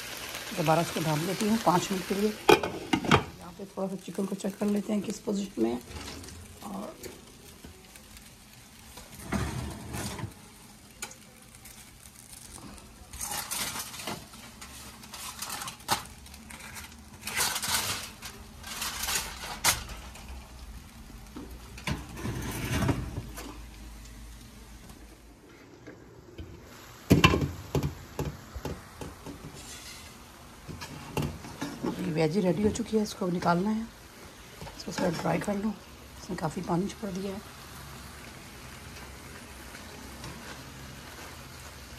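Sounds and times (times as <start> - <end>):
aluminium foil crinkling: 0.2 - 24.2, 34.5 - 41.9.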